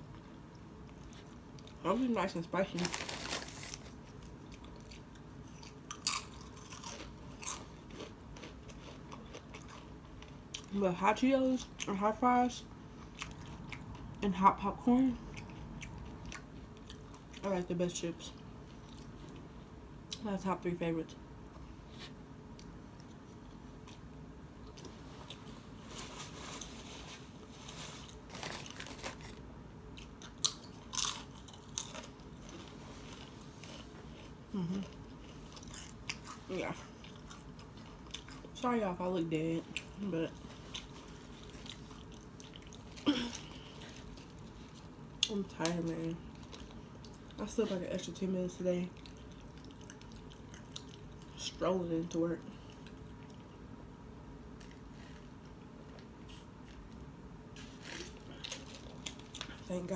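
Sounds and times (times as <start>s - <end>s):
tortilla chips crunching: 0.8s - 10.7s, 24.7s - 38.6s, 39.7s - 47.4s, 57.6s - 59.7s
chewing: 3.0s - 10.7s, 13.0s - 14.2s, 15.2s - 17.4s, 18.6s - 19.5s, 30.0s - 38.6s, 39.7s - 45.3s, 48.9s - 51.4s.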